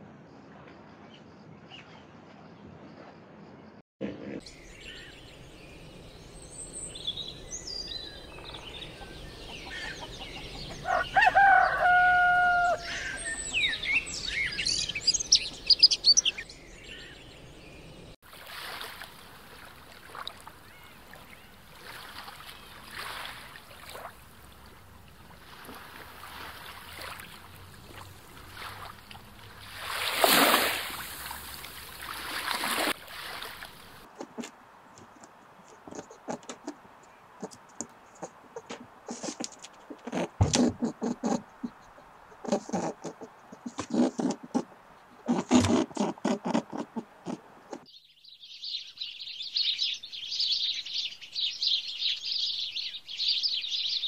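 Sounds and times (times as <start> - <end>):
birds chirping and calling: 4.3 - 18.1
sea water washing over rocks: 22.0 - 34.1.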